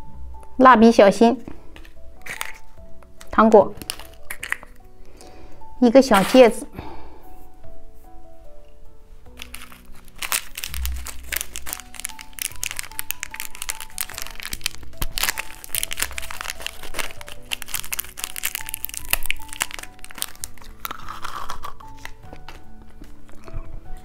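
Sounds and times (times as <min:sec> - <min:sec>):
background music: 0:00.0 - 0:24.0
candy wrapper crinkling: 0:01.8 - 0:04.9, 0:09.3 - 0:23.5.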